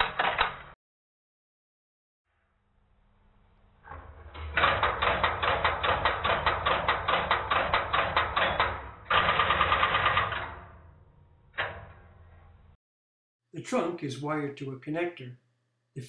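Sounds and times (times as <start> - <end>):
selector rattling burst: 4.8 - 10.8.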